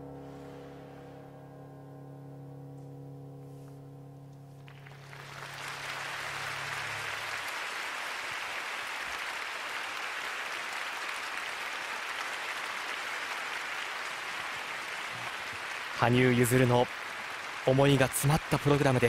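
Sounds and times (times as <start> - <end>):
audience applauding: 4.7 - 19.0.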